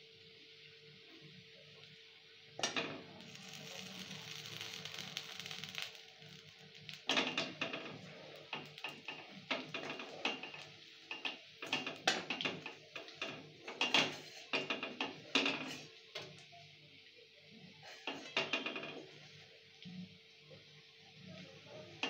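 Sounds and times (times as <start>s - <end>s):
oil frying: 0.3s - 22.0s
metal spatula scraping pan: 13.7s - 15.9s.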